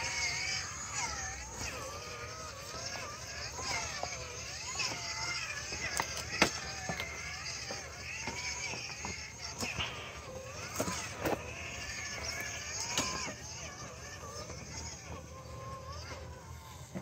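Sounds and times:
tires and chassis knocking on stones: 0:00.0 - 0:14.9
electric motor whining: 0:00.0 - 0:17.0.

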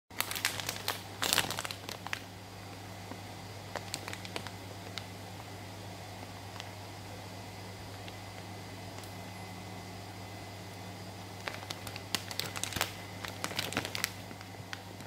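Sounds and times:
plastic bag crinkling: 0:00.1 - 0:05.5, 0:11.4 - 0:15.0.

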